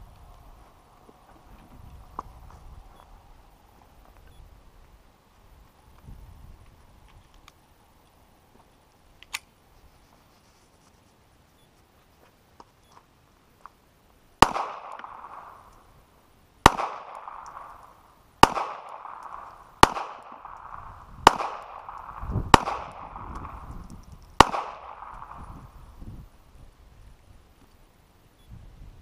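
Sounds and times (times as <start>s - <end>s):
gunshots with echo: 14.4s - 15.7s, 16.6s - 23.8s, 24.4s - 25.7s.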